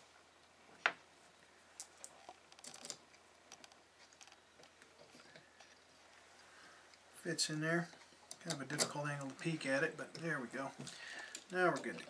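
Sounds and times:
small metal parts clicking: 0:01.8 - 0:04.4, 0:10.1 - 0:12.0.

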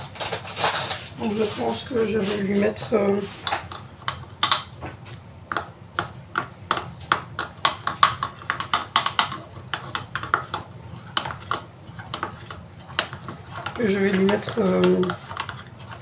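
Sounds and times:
utensil clinking against dishes: 0:00.0 - 0:01.6.

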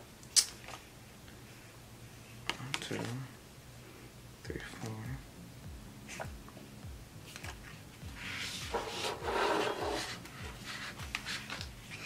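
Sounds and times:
paper rustling and sliding: 0:08.2 - 0:12.0.

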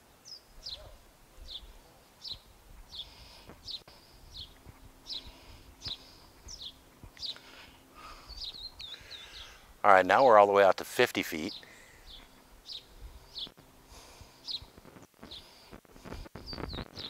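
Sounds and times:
songbird chirping: 0:00.1 - 0:10.4, 0:11.3 - 0:13.7, 0:14.4 - 0:14.7.

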